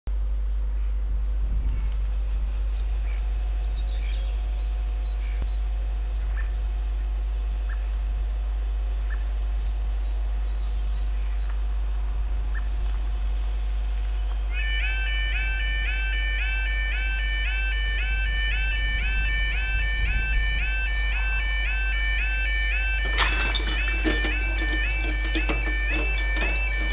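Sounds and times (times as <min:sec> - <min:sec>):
level crossing warning alarm: 0:14.5 - 0:26.9.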